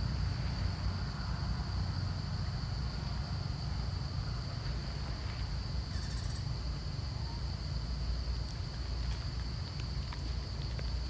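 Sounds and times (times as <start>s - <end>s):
high-pitched insect drone: 5.8s - 7.7s.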